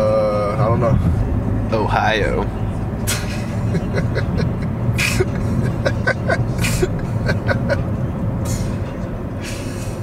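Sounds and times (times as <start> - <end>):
car cabin rumble: 0.0 - 9.3
breathy wheezing laughter: 3.2 - 7.9.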